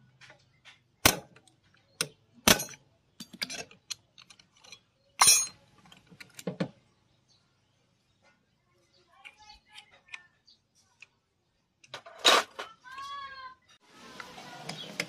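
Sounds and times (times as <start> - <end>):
metallic clanks of steel tools: 2.0 - 5.6.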